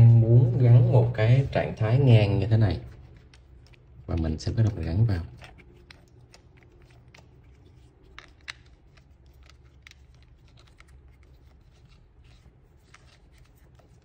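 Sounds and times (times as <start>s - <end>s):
low hum: 0.0s - 5.6s.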